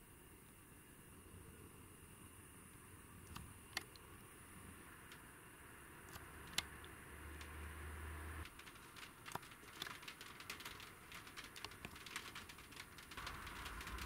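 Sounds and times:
raindrops ticking on a roof: 4.9s - 5.3s, 5.9s - 14.0s.

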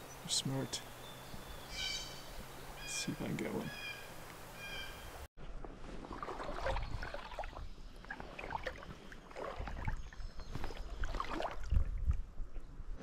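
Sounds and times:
river water sloshing and splashing: 5.6s - 12.2s.

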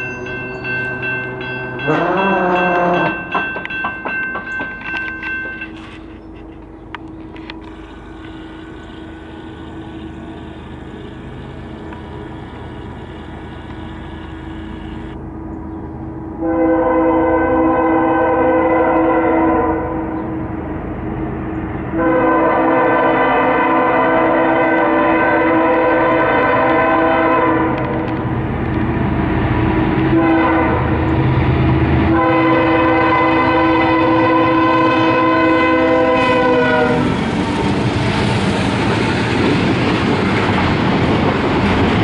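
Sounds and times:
crossing warning bell ringing: 0.0s - 10.3s
diesel locomotive rumble: 0.0s - 42.0s
train air horn blasts: 1.8s - 3.4s, 16.4s - 20.1s, 21.9s - 28.1s, 30.1s - 31.0s, 32.1s - 37.2s.

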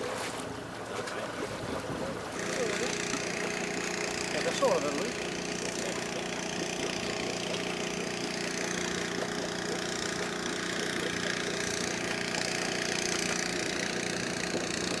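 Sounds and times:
boat engine humming: 0.0s - 15.0s
water noise: 0.0s - 15.0s.

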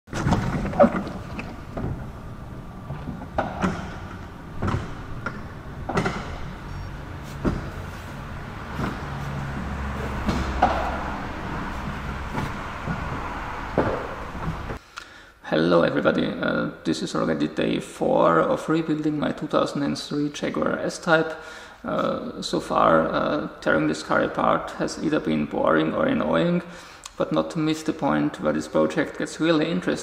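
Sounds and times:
garage door motor hum: 0.1s - 14.8s
garage door panels rattling: 0.1s - 14.8s.

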